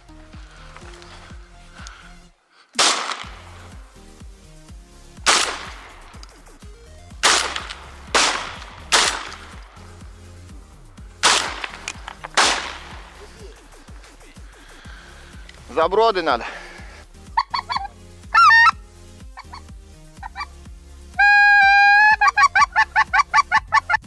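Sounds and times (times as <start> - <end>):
background music low notes: 0.0 - 24.0
shotgun shots: 2.8 - 3.7, 5.2 - 6.4, 7.2 - 9.8, 11.2 - 13.2.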